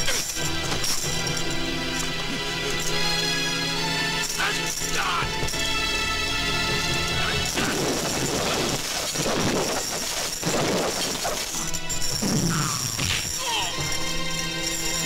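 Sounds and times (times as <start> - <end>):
crashing and clattering hit effects: 7.4 - 13.4.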